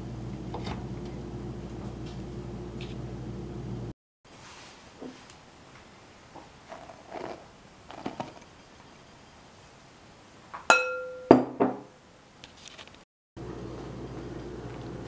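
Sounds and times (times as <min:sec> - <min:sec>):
glass bowl knocked and ringing: 0:10.7 - 0:11.8.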